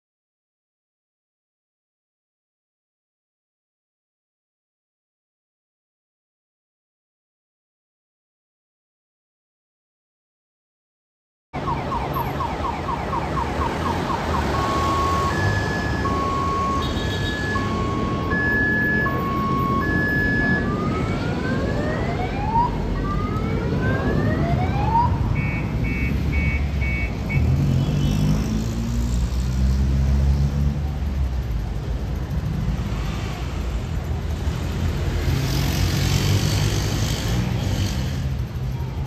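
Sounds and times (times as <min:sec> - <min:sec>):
street traffic rumble: 0:11.6 - 0:39.0
short beeps: 0:14.6 - 0:20.6, 0:25.4 - 0:27.5
vehicle engine revving: 0:32.4 - 0:38.6.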